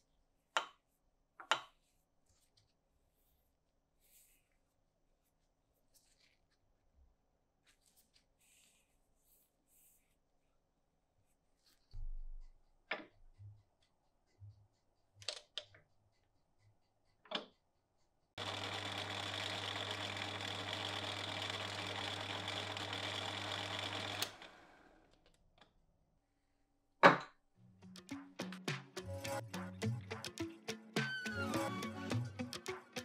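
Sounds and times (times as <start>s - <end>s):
lathe motor running: 18.4s - 25.0s.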